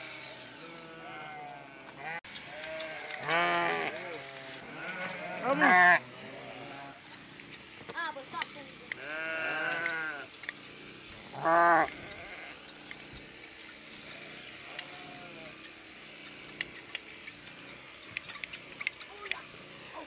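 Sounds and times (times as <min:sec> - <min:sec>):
shears snipping fleece: 0:00.0 - 0:20.0
sheep bleating: 0:00.4 - 0:07.0, 0:08.9 - 0:10.3, 0:11.3 - 0:12.6, 0:14.0 - 0:15.6.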